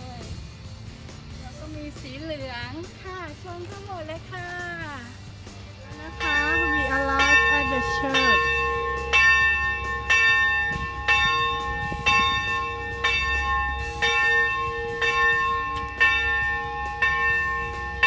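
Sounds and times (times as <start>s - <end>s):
church bell tolling: 6.0s - 18.0s.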